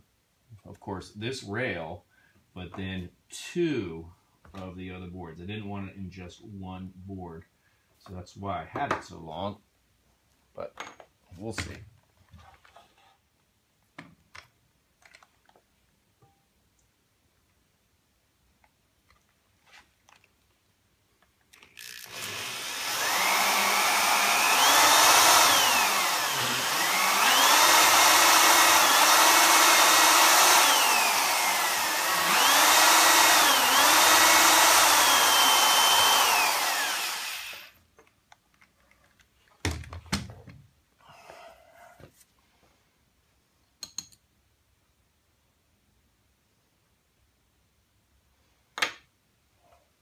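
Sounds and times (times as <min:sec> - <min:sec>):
electric drill boring into wood: 0:21.7 - 0:37.8.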